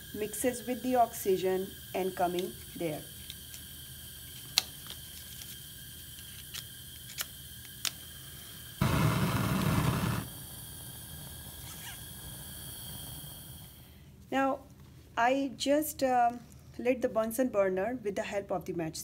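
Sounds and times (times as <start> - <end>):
gas burner flaring: 0.0 - 14.1
match striking: 2.2 - 8.0
matchbox clicks: 4.4 - 5.6, 6.2 - 8.0.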